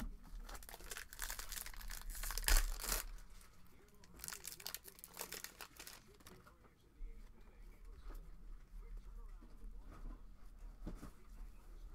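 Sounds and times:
foil wrapper crinkling and tearing: 0.4s - 3.2s, 4.0s - 6.4s.

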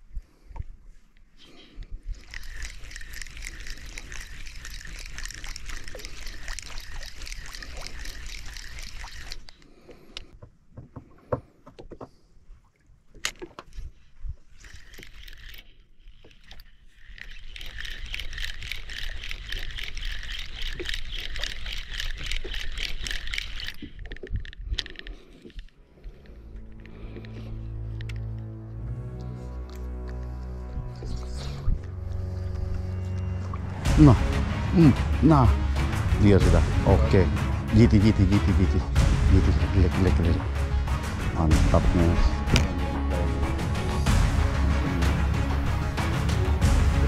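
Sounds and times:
fishing reel ticking: 1.5s - 10.4s, 14.4s - 28.5s.

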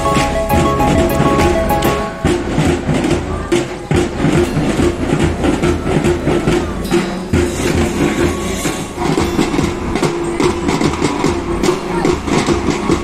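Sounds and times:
marching band drums: 0.0s - 13.0s.

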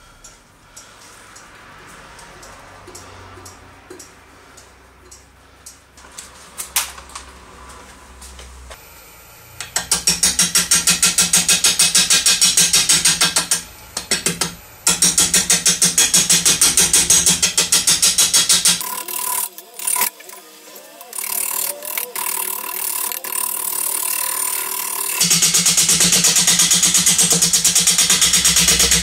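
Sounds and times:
gouge chopping spinning wood: 21.1s - 29.0s.

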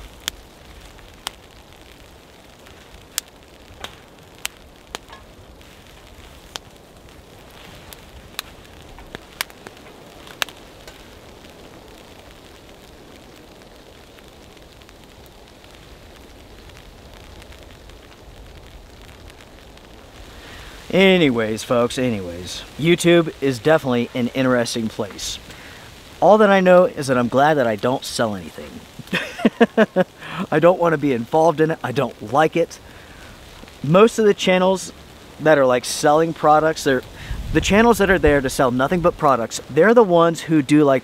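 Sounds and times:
soft stove hiss: 0.0s - 41.0s
wood fire crackling: 0.0s - 41.0s
sharp pops: 2.6s - 11.2s.

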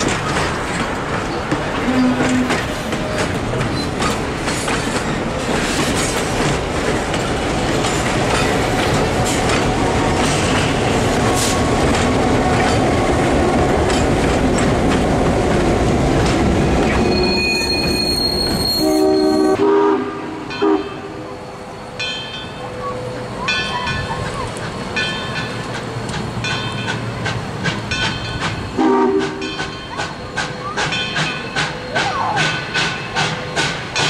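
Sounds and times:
clicking rail joints: 0.0s - 17.0s, 23.6s - 34.0s
train wheels rumbling on rail: 0.0s - 34.0s
locomotive horn chord: 1.8s - 2.6s, 18.9s - 21.3s, 28.8s - 29.5s
wheel squeal: 16.9s - 19.6s.

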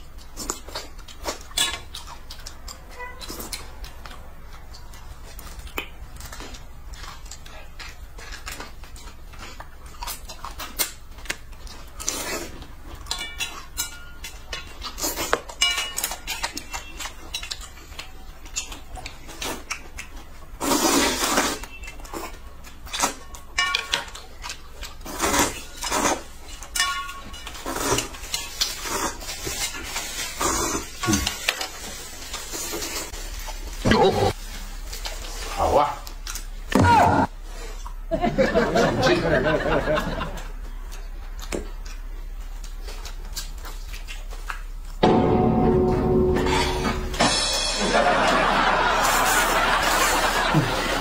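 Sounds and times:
chopsticks clinking on metal bowls: 12.9s - 18.8s, 22.9s - 24.6s, 25.6s - 28.8s.

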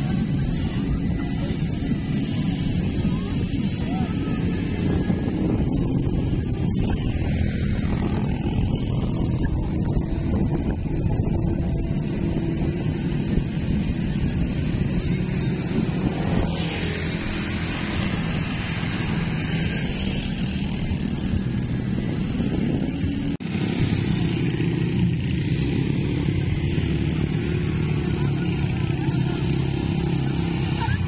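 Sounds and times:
vehicle engine running: 0.0s - 31.0s.

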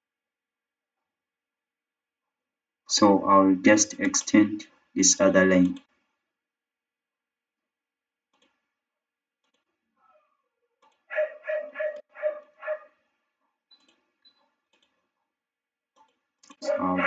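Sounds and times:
dog barking: 11.1s - 13.0s, 16.6s - 17.0s.

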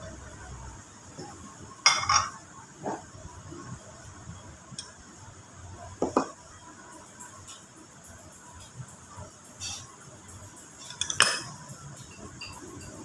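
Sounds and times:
ceramic bowls clinking: 1.8s - 2.4s, 10.9s - 13.0s.

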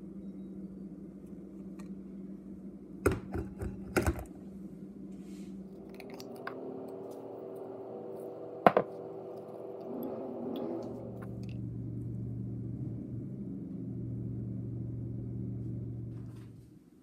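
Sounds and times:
espresso machine humming: 5.7s - 12.2s
glass cup knocking and clinking: 8.7s - 8.9s.

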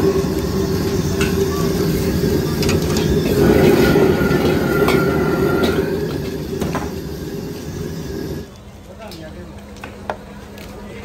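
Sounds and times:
gas burner rushing: 0.0s - 9.2s.

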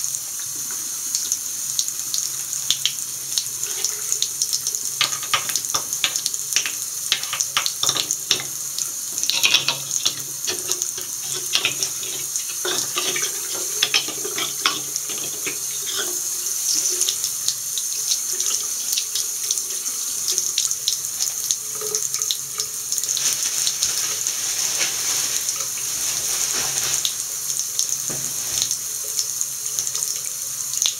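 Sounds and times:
tap running into sink: 2.7s - 19.6s, 27.8s - 30.2s.

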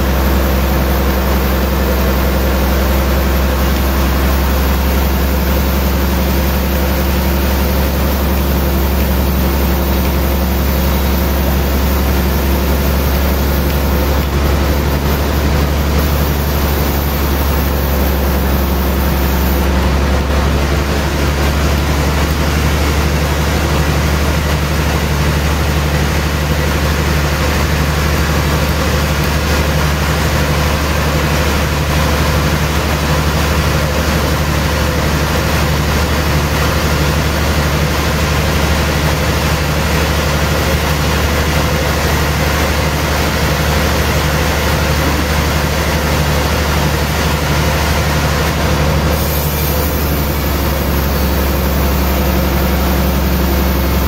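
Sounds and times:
band saw motor hum: 0.0s - 54.0s
saw blade hissing through wood: 3.0s - 19.8s, 49.0s - 54.0s.

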